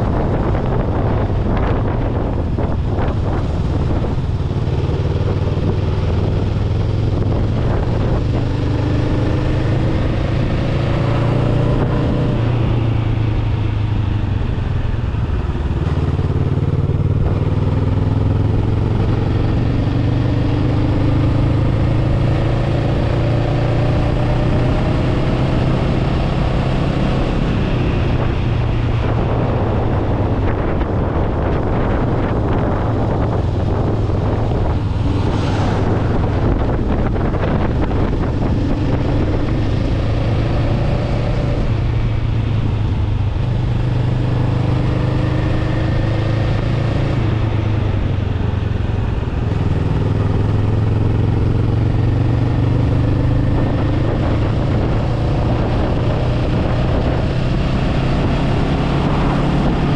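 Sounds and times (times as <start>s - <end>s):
motorcycle engine accelerating: 0.0s - 59.9s
wind on microphone: 0.0s - 59.9s.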